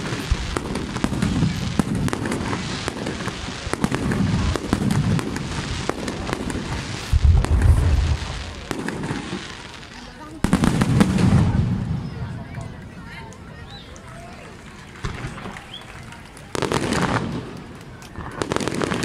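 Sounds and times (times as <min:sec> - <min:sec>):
fireworks booming: 0:00.0 - 0:12.3, 0:16.5 - 0:19.0
fireworks crackling: 0:00.0 - 0:19.0.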